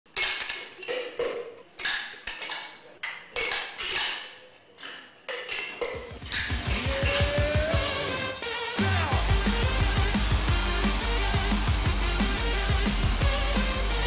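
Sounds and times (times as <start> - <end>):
music with bass beat: 6.2 - 14.0.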